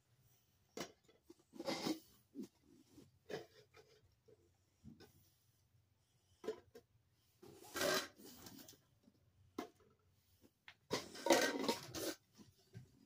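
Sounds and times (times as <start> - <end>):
plastic cups scraping: 0.8 - 4.0, 7.4 - 8.8, 10.9 - 12.4.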